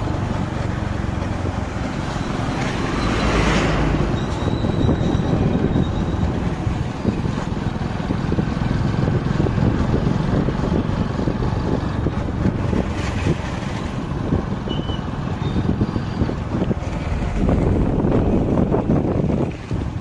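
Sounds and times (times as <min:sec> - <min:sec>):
road noise: 0:00.0 - 0:20.0
wind buffeting microphone: 0:00.0 - 0:20.0
motorcycle engine rumble: 0:04.6 - 0:20.0.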